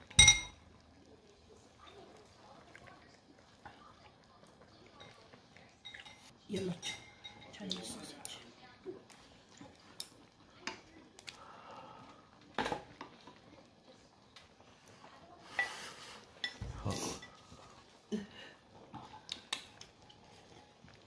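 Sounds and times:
chewing: 0.9s - 6.3s, 8.9s - 14.6s, 18.7s - 21.0s.

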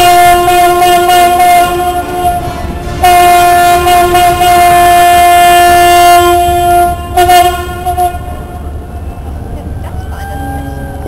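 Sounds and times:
ship horn blasts: 0.0s - 9.0s.

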